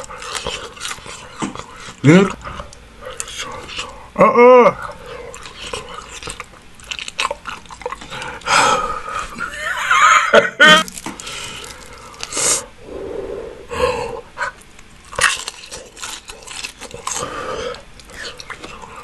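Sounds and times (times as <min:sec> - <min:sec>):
crispy chicken tearing: 0:00.0 - 0:04.0, 0:04.8 - 0:08.5, 0:10.8 - 0:12.6, 0:14.6 - 0:19.0
man hissing breaths: 0:12.3 - 0:14.4.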